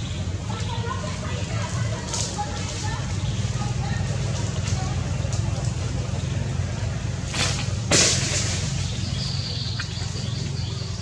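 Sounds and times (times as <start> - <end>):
sharp crack: 7.2 - 9.0.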